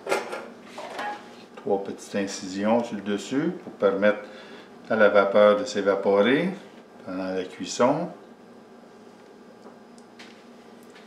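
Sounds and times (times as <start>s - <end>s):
kitchen handling sounds: 0.0s - 1.3s
faint steady hum: 0.0s - 11.0s.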